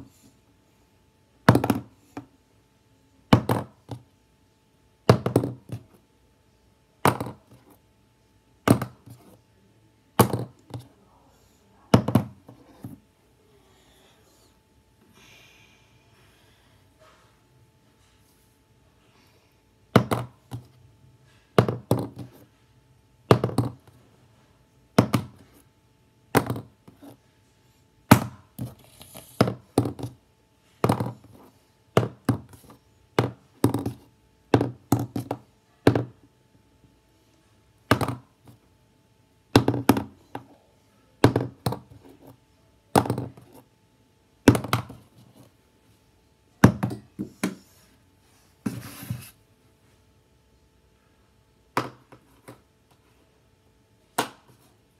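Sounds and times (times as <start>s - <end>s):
plastic pen landing knocks: 1.5s - 1.9s, 3.3s - 4.0s, 5.1s - 5.8s, 7.0s - 7.5s, 8.7s - 9.2s, 10.2s - 10.8s, 12.0s - 12.4s, 20.0s - 20.7s, 21.6s - 22.4s, 23.3s - 23.8s, 25.0s - 25.4s, 26.3s - 27.1s, 28.1s - 28.7s, 30.8s - 31.4s, 32.0s - 36.1s, 37.9s - 38.3s, 39.5s - 40.4s, 41.2s - 42.0s, 42.9s - 43.6s, 44.5s - 45.0s, 46.6s - 47.6s, 51.8s - 52.6s.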